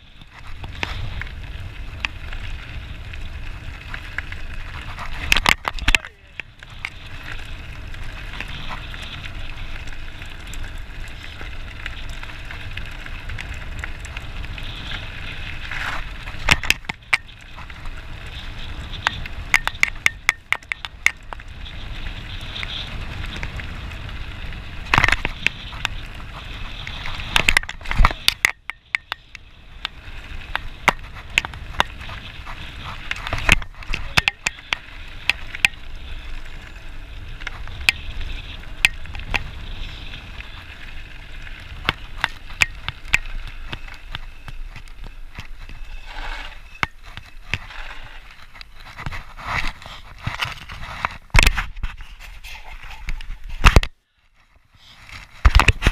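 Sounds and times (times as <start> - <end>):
bike tyres crunching on gravel: 0.0 - 55.9
bike clattering over bumps: 0.2 - 49.3.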